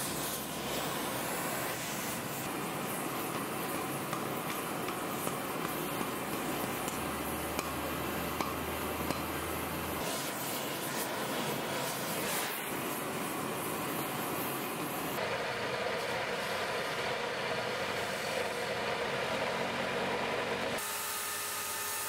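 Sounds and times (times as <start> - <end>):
torch hissing roar: 0.0 - 15.2.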